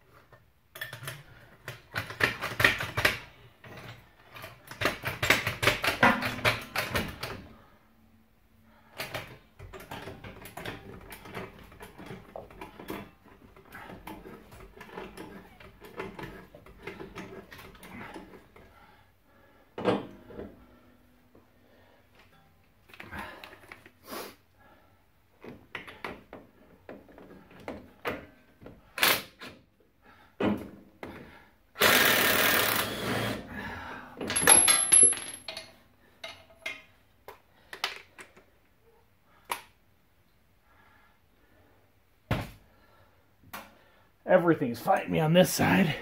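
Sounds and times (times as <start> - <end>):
clicks and knocks of tools: 0.3 - 7.4, 34.2 - 38.5
impact wrench running: 31.8 - 33.5.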